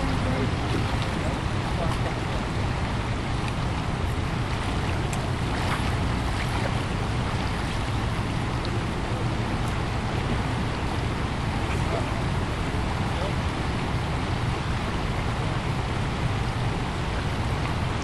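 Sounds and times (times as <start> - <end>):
river rushing over riffles: 0.0 - 18.0
wind rumbling on microphone: 0.0 - 18.0.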